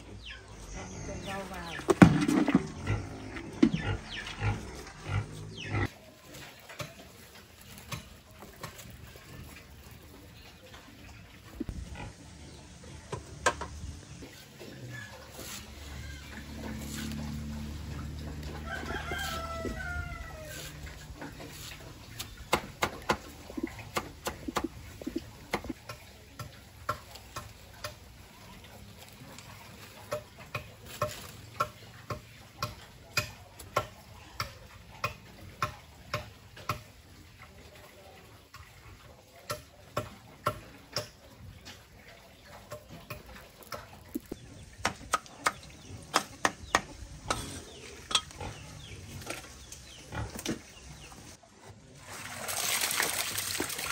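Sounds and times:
rooster crowing: 0:18.4 - 0:20.9.

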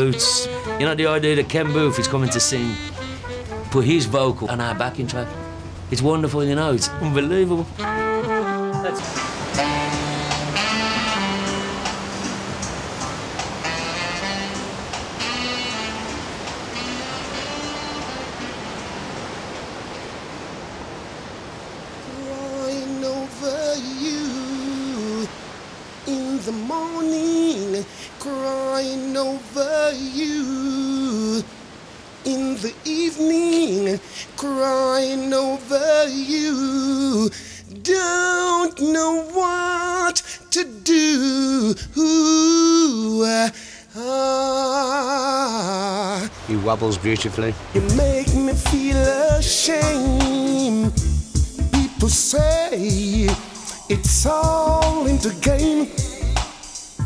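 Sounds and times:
man singing unaccompanied: 0:00.0 - 0:04.3, 0:13.6 - 0:18.4, 0:22.0 - 0:46.6, 0:47.6 - 0:57.0
soft hiss: 0:08.7 - 0:57.0.

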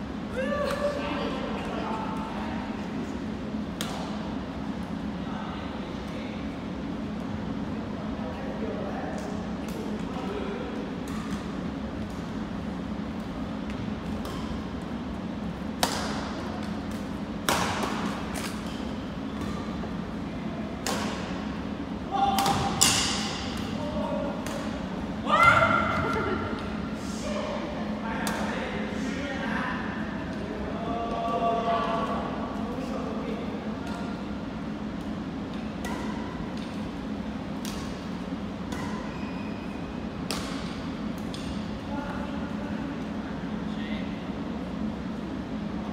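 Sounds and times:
steady low hum: 0:00.0 - 0:45.9
racket hitting shuttlecock: 0:15.8 - 0:19.8, 0:20.8 - 0:21.3, 0:22.2 - 0:23.8, 0:35.0 - 0:36.8, 0:37.6 - 0:39.2, 0:40.2 - 0:41.6.

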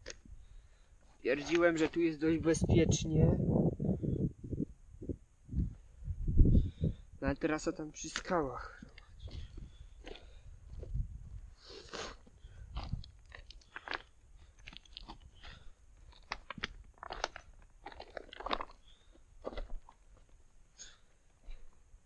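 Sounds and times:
footsteps crunching on scree: 0:08.0 - 0:20.4.

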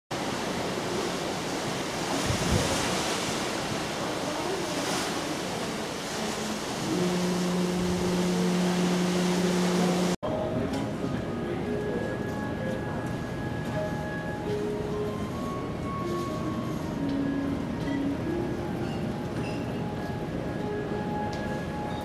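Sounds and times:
wind and sea rushing: 0:00.1 - 0:10.2
ship's horn blast: 0:05.9 - 0:10.2.

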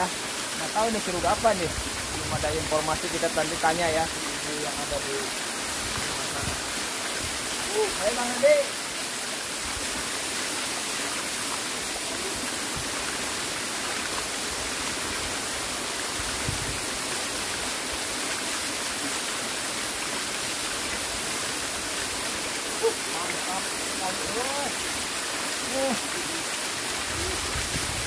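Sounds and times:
waterfall rushing onto stones: 0:00.0 - 0:28.0.

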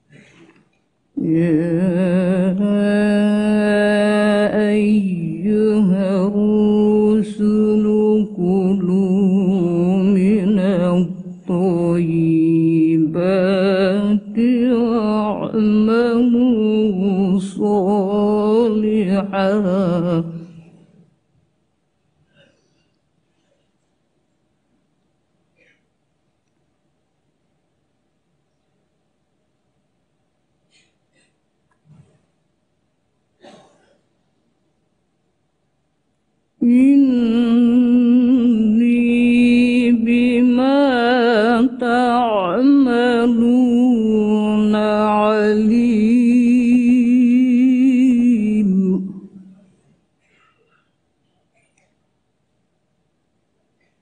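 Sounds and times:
woman chanting recitation: 0:01.1 - 0:20.9, 0:36.6 - 0:49.7.

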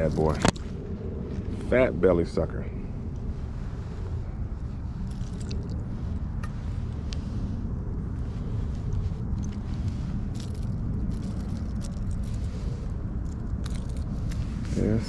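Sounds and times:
wind on microphone: 0:00.0 - 0:15.0
small clicks and rustles: 0:05.0 - 0:05.8, 0:08.4 - 0:14.8.

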